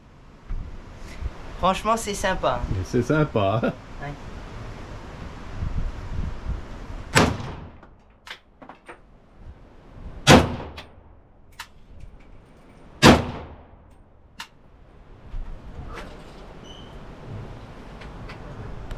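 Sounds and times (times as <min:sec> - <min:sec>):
rifle shots: 0:07.2 - 0:07.8, 0:10.3 - 0:10.9, 0:13.0 - 0:13.7.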